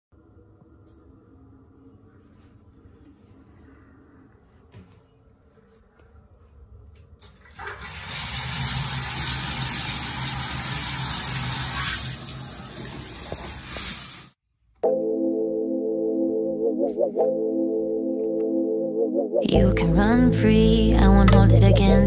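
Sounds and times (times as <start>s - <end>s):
water running into bathtub: 7.2s - 14.4s.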